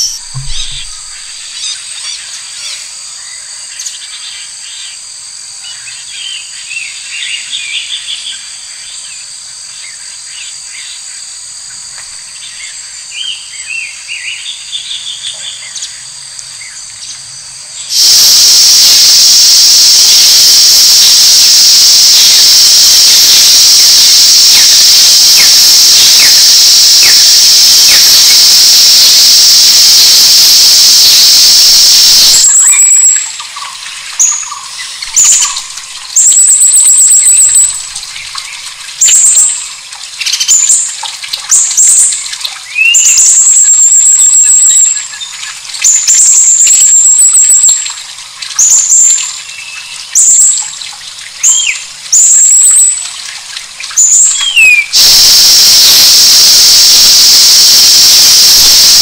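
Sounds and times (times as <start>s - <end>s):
high insect drone: 17.9s - 33.2s, 55.0s - 59.0s
loud high insect buzz: 17.9s - 33.2s, 55.0s - 59.0s.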